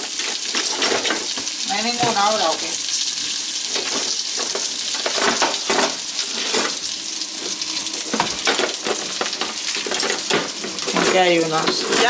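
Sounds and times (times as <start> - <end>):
metal utensils clattering in drawer: 0.2 - 1.3, 3.7 - 6.8, 8.1 - 12.0.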